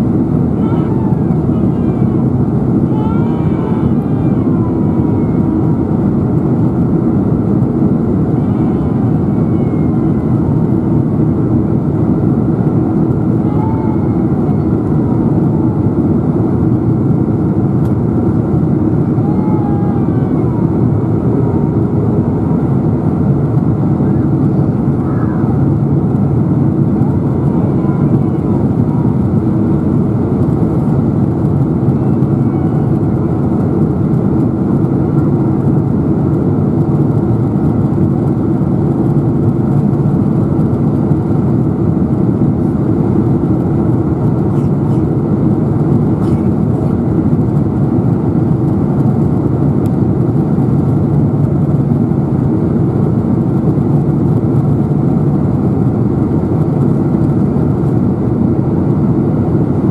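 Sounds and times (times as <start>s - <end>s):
airplane cabin roar: 0.0s - 59.9s
steady low hum: 0.0s - 59.9s.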